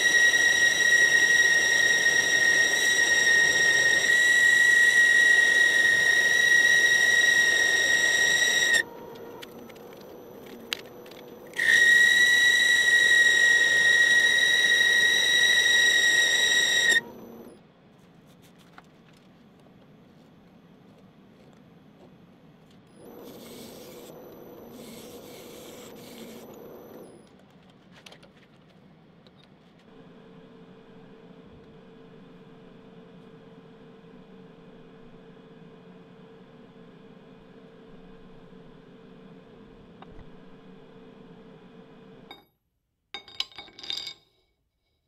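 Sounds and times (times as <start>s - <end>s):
metal lathe running: 0.0s - 9.1s, 11.0s - 17.5s
lathe tool squealing: 0.0s - 9.3s, 11.5s - 17.5s.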